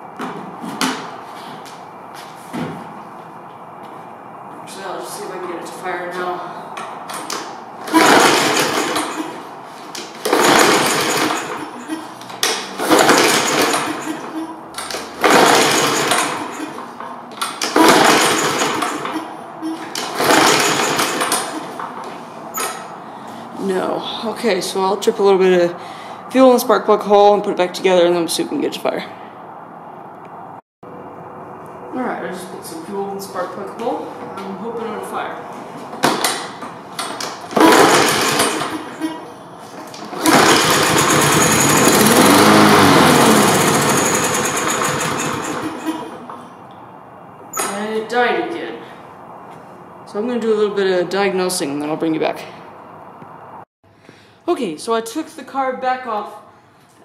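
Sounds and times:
lawnmower engine cranking: 6.8 - 22.8, 36.0 - 46.3.

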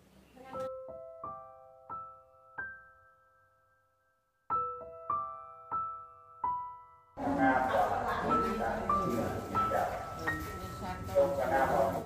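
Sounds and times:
soft piano notes: 4.5 - 12.0.

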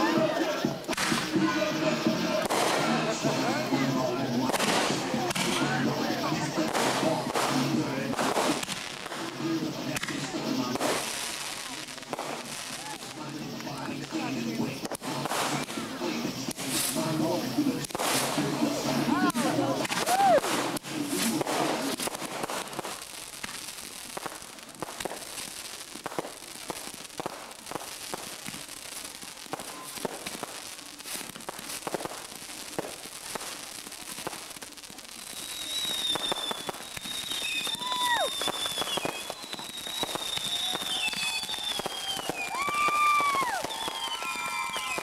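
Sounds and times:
fireworks bursting and crackling: 0.0 - 45.0
high falling whistles: 35.4 - 45.0.

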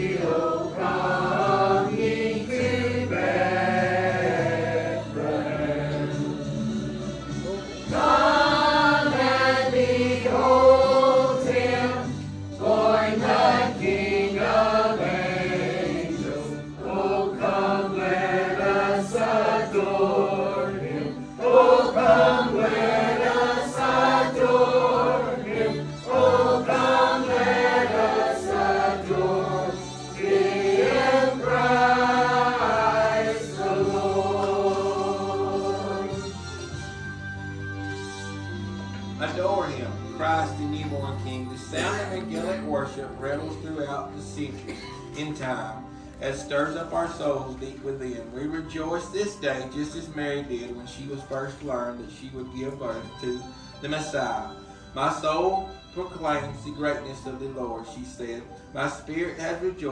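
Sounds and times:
church choir singing: 0.0 - 6.9, 7.8 - 36.8
musical accompaniment: 0.0 - 59.9.

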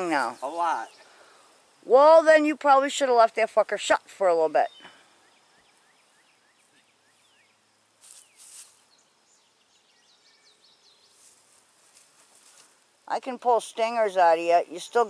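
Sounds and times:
brief rustle: 8.0 - 8.8, 11.2 - 12.8.

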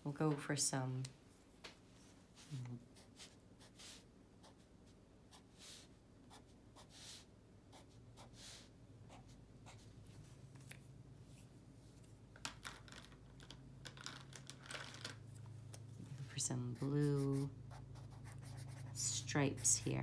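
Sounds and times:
marker scratching on paper: 3.0 - 4.7, 5.3 - 9.9, 16.8 - 20.0.

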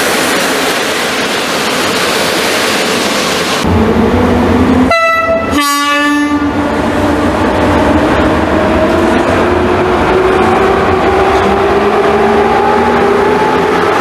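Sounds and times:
electric locomotive rolling past: 0.0 - 14.0
two-tone locomotive horn: 4.9 - 6.6.

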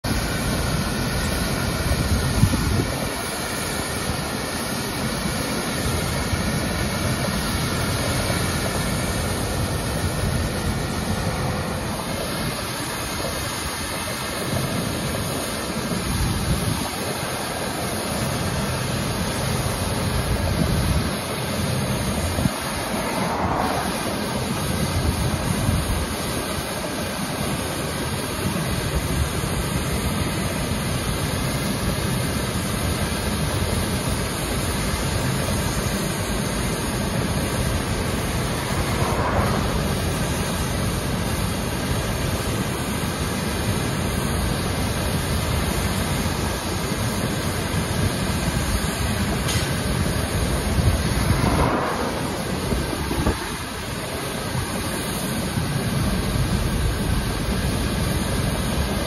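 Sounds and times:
street sweeper engine and brushes: 0.0 - 59.0
cars passing: 22.1 - 25.9, 37.1 - 41.4, 49.4 - 54.9.

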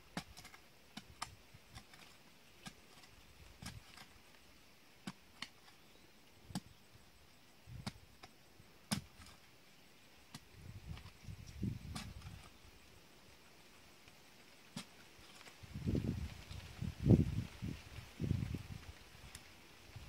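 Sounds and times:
digging tool chopping into soil: 0.1 - 4.2, 5.0 - 5.8, 6.5 - 6.8, 7.7 - 9.4, 10.3 - 11.2, 11.8 - 12.5.

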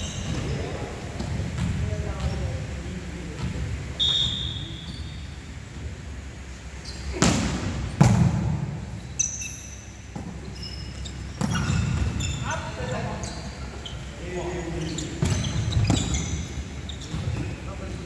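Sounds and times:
sneaker squeaks: 0.0 - 2.6, 3.4 - 5.5, 6.7 - 8.1, 8.9 - 18.0
volleyball hit echoing: 7.1 - 8.8.

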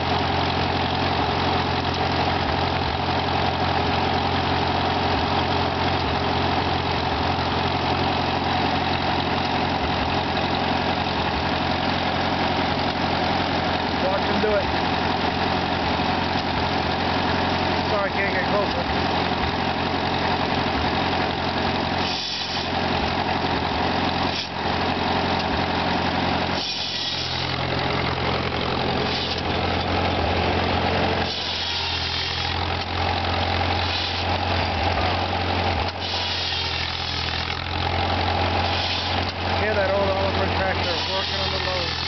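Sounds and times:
tractor engine running: 0.0 - 42.0
saw rasping through wood: 22.0 - 22.8, 24.2 - 24.6, 26.5 - 29.8, 31.2 - 34.4, 35.8 - 42.0.

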